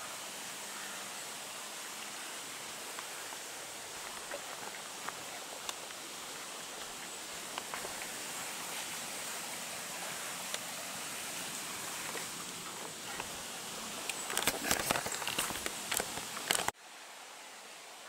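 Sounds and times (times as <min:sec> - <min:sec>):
steady hiss: 0:00.0 - 0:18.0
footsteps crunching through dry leaves: 0:03.2 - 0:08.9.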